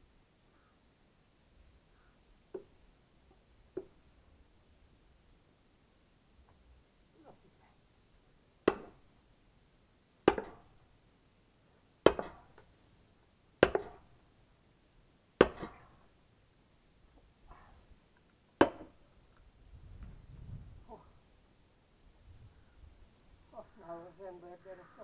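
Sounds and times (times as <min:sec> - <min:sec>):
axe chopping firewood: 0:08.6 - 0:09.0, 0:10.2 - 0:10.7, 0:12.0 - 0:12.6, 0:13.6 - 0:14.1, 0:15.4 - 0:16.0, 0:18.6 - 0:19.0.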